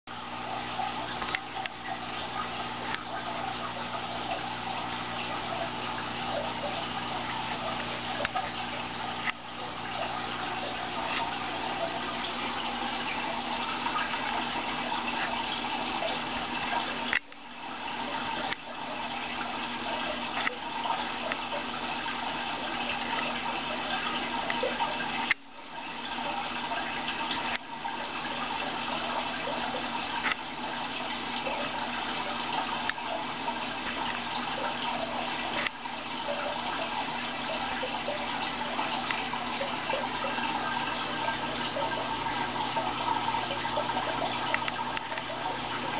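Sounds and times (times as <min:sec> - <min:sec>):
water trickling into aquarium: 0:00.1 - 0:45.9.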